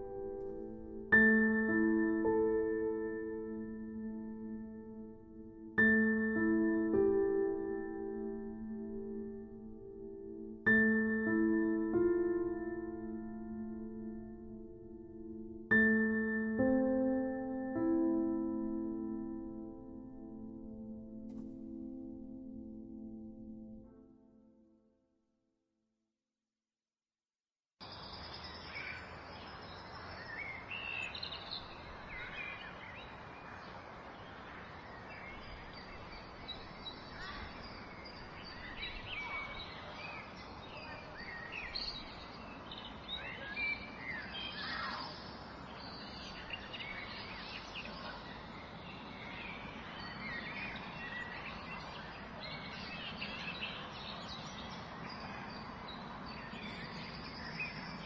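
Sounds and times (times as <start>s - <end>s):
steady outdoor hiss: 0.0s - 20.7s, 27.8s - 58.0s
birds chirping and singing: 28.0s - 58.0s.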